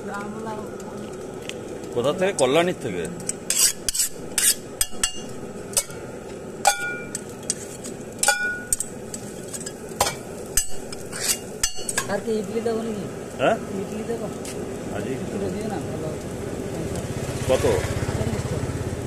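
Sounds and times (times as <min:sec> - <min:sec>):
steady hiss: 0:00.0 - 0:18.4
metal spatula scraping griddle: 0:03.2 - 0:06.0, 0:06.7 - 0:12.2.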